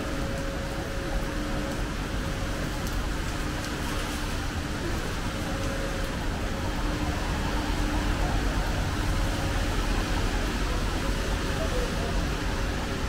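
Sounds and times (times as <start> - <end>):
road traffic: 0.1 - 13.0.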